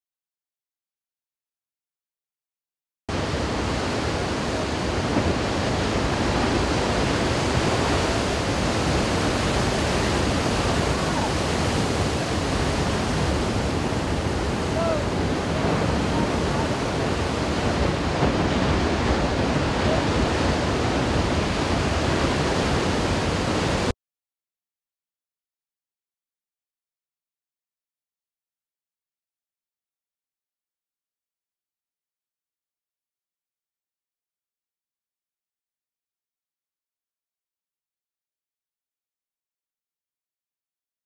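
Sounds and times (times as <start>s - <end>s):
heavy ocean surf roaring: 3.1s - 23.9s
wind noise on microphone: 3.1s - 23.9s.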